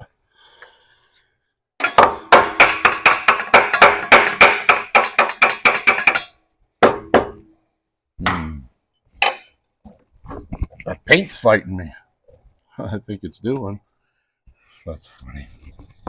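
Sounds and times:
hammer striking steel: 0:01.8 - 0:07.5.

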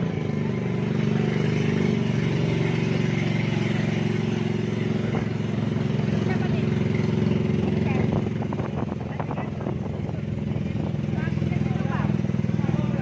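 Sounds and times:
boat motor running steadily: 0:00.0 - 0:13.0.

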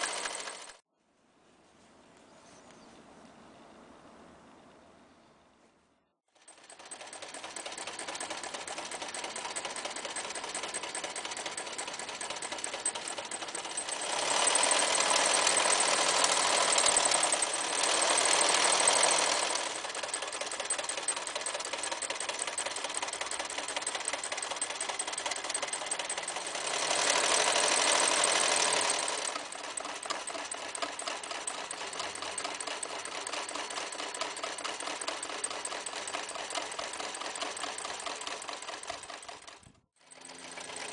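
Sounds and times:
sewing machine needle clatter: 0:00.0 - 0:00.8, 0:06.3 - 0:40.9.

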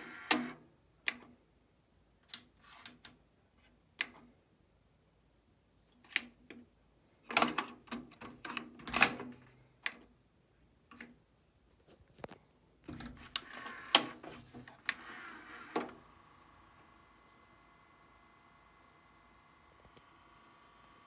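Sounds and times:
cassette deck whirring: 0:00.0 - 0:00.6, 0:12.9 - 0:21.0.

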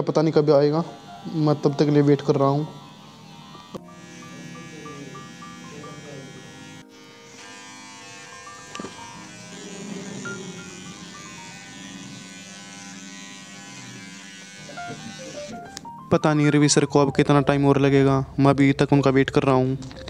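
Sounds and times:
electric beard trimmer buzzing: 0:00.3 - 0:15.9.

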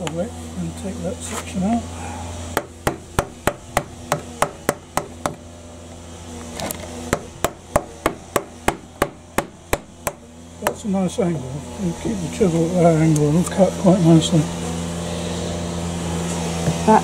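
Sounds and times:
hammer striking chisel: 0:02.6 - 0:05.4, 0:07.1 - 0:10.9.

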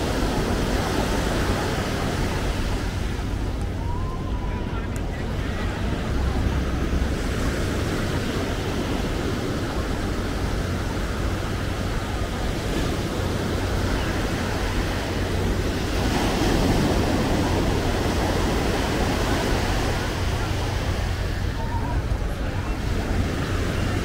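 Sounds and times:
surf breaking on beach: 0:00.0 - 0:24.0.

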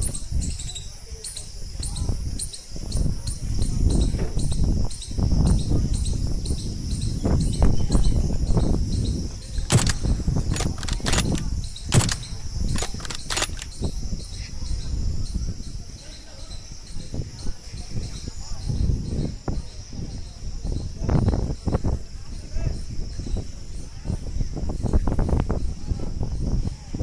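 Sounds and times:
wind rumble on microphone: 0:00.0 - 0:27.0
insects chirping: 0:04.7 - 0:14.4
sharp clicks: 0:09.6 - 0:13.8.

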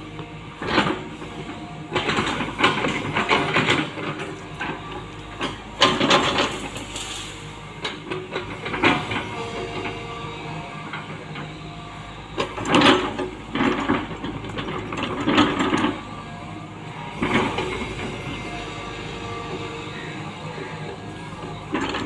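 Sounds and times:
hydraulic excavator working: 0:00.0 - 0:22.0.

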